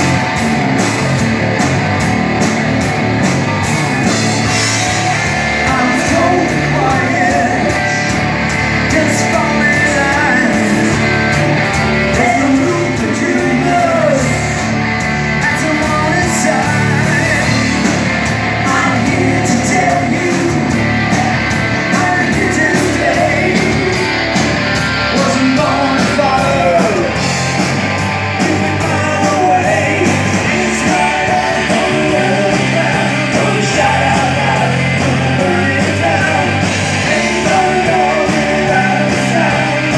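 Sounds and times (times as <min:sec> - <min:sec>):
drum kit: 0:00.0 - 0:39.9
electric bass: 0:00.0 - 0:39.9
electric guitars: 0:00.0 - 0:39.9
person singing: 0:04.9 - 0:08.2, 0:08.8 - 0:11.4, 0:12.1 - 0:14.7, 0:15.4 - 0:17.8, 0:18.6 - 0:20.9, 0:21.9 - 0:24.0, 0:25.1 - 0:27.2, 0:28.4 - 0:39.9.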